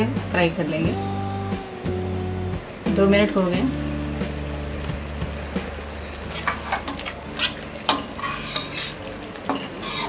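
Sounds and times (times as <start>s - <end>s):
gravy bubbling and sizzling: 3.7s - 10.0s
spatula scraping a pan: 6.3s - 10.0s.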